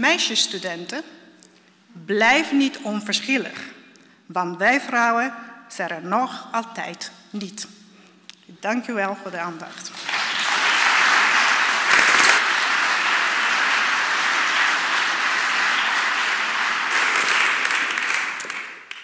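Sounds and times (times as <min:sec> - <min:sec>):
audience applauding: 0:09.9 - 0:19.0.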